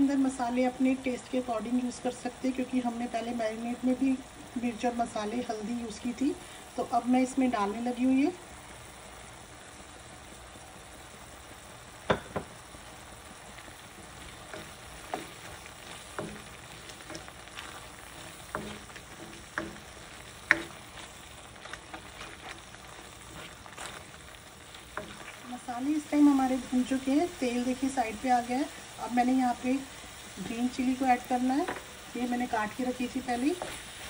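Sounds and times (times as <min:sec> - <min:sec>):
masala sizzling in a pan: 0:00.0 - 0:34.0
spatula scraping and knocking pan: 0:14.0 - 0:25.6, 0:33.2 - 0:34.0.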